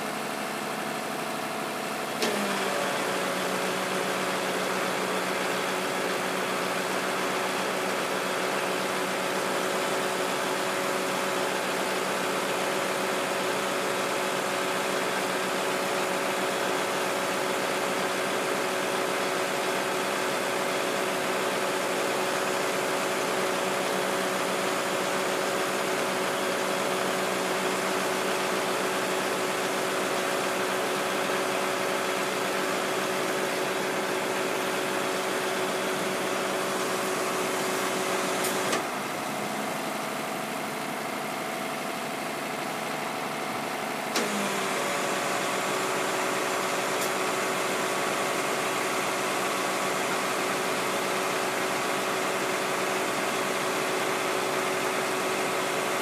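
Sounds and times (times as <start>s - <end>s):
vehicle engine idling: 0.0s - 56.0s.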